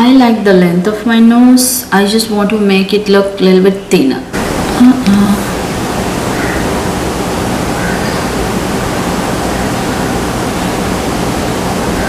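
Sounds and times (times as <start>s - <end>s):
steady background hiss: 0.0s - 12.0s.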